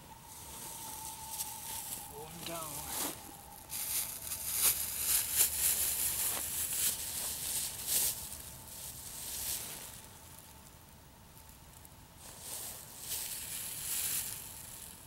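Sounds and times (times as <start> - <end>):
dry leaves rustling: 0.0 - 15.0
plastic bag crinkling: 0.8 - 10.4.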